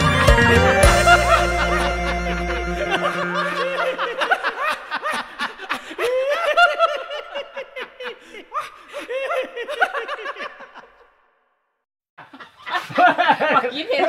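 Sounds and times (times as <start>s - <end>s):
background music: 0.0s - 4.7s
people laughing: 0.0s - 11.2s, 12.2s - 14.0s.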